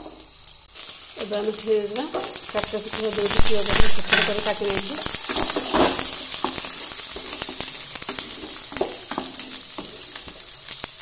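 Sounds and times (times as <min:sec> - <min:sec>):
onions sizzling in hot oil: 0:00.0 - 0:11.0
spatula scraping pan: 0:03.2 - 0:10.5.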